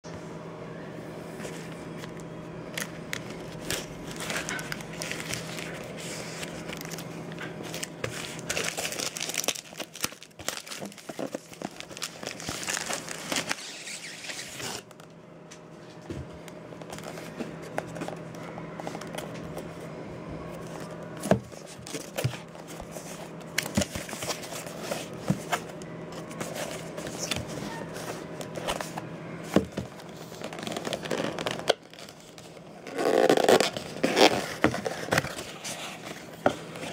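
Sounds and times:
plastic mailer crinkling and tearing: 2.7s - 15.0s, 20.6s - 29.0s, 29.6s - 36.9s
cardboard box handling: 3.1s - 7.0s, 7.6s - 13.6s, 20.5s - 36.9s.

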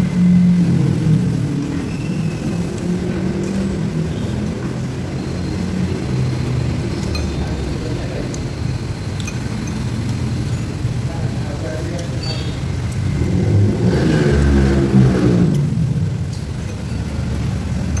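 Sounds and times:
dining room rumble: 0.0s - 18.0s
cutlery clinking on bowl: 7.0s - 7.6s, 9.2s - 10.1s, 16.4s - 18.0s.

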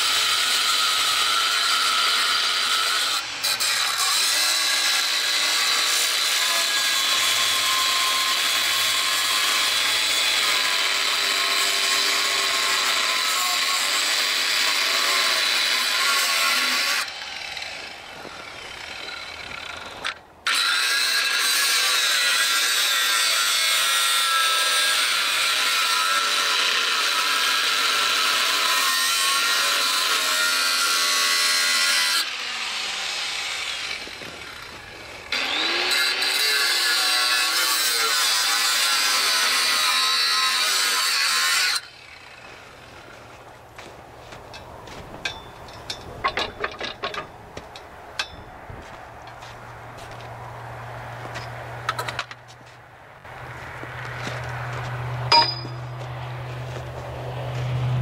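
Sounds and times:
angle grinder cutting steel: 0.0s - 43.2s, 55.3s - 56.1s.

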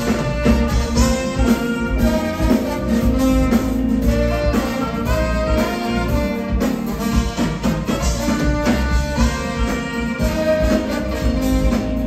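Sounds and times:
live band playing jazzy music: 0.0s - 12.0s.

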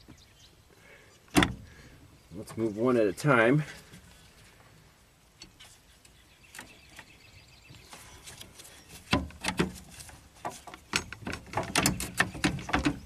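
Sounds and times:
plastic clicks and knocks: 10.4s - 13.0s.

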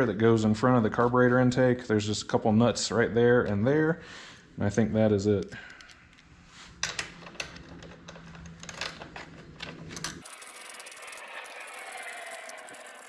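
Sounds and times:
mechanical whirring: 10.2s - 13.0s.

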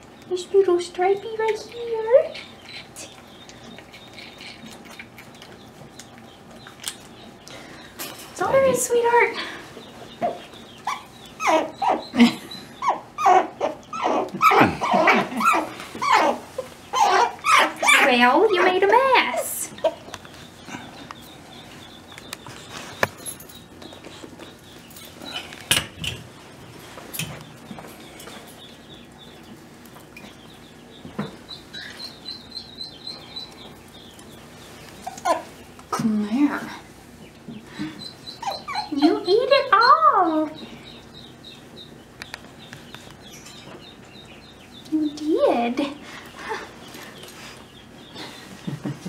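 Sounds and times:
baby marmot fussing calls: 10.2s - 12.2s, 12.8s - 18.7s, 38.0s - 40.6s
small animal chirping: 38.0s - 43.5s.

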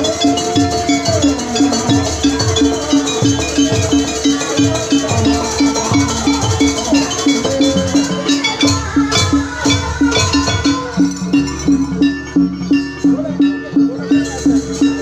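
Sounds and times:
drum strokes: 0.0s - 15.0s.

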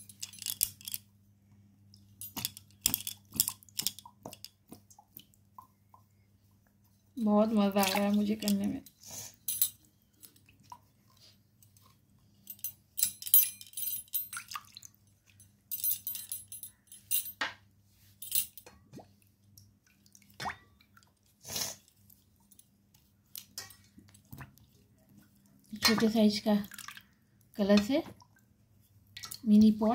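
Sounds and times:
water splashing and dripping: 7.5s - 8.8s, 14.3s - 15.1s, 25.6s - 28.5s.

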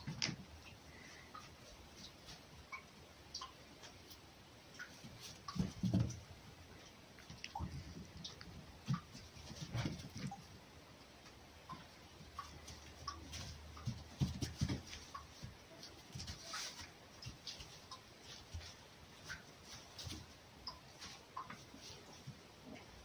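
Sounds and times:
animals scuffling on straw: 12.4s - 22.6s.

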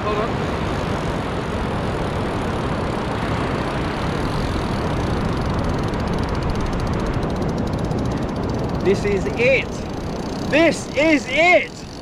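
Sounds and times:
wind rumbling on microphone: 0.0s - 12.0s
fast fine ticking: 4.1s - 12.0s.

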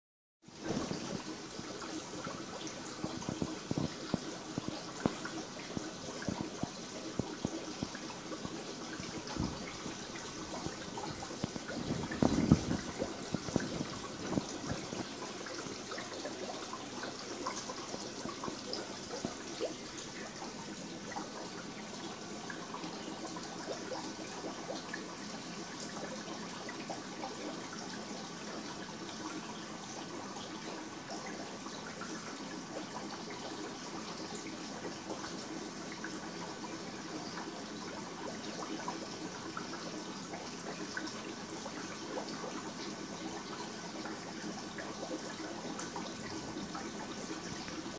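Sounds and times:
aquarium water trickling: 0.5s - 47.9s
bubbles bursting: 0.6s - 25.0s.

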